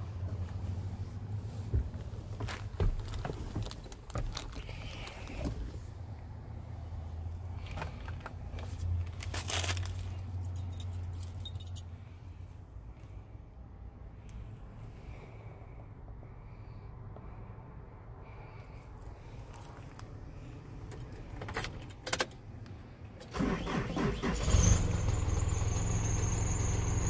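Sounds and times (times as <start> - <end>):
keys jingling: 9.4 - 11.8, 20.9 - 22.4.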